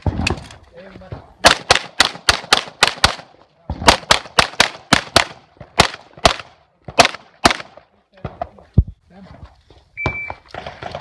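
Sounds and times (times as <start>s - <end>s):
pistol shots: 1.4s - 7.8s.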